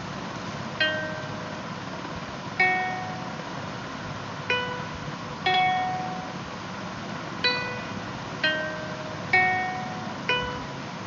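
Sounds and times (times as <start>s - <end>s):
plucked string notes: 0.8s - 1.8s, 4.5s - 6.4s, 7.4s - 10.8s.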